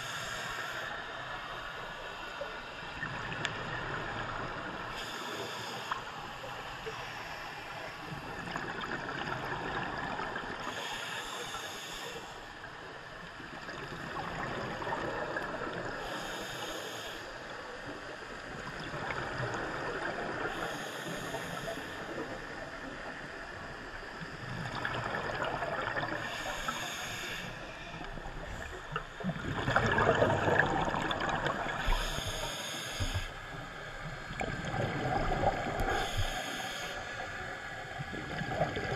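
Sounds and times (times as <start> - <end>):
regulator inhalation hiss: 0.0 - 2.4, 4.9 - 8.2, 10.6 - 12.6, 16.0 - 17.5, 20.4 - 22.3, 26.0 - 29.0, 31.8 - 33.9, 35.7 - 37.4
gurgle of exhaled bubbles: 24.4 - 26.4, 28.1 - 32.0, 34.3 - 36.2, 38.0 - 38.9.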